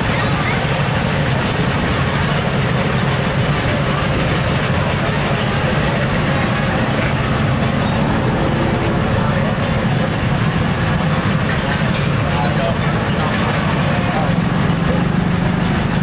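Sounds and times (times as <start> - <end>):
dense background din: 0.0 - 16.0
engine humming: 0.0 - 16.0.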